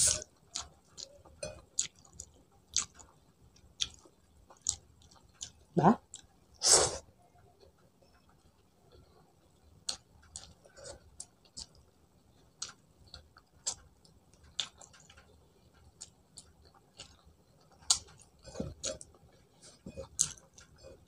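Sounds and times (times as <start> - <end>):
mouth chewing food: 0.0 - 6.3, 7.6 - 21.0.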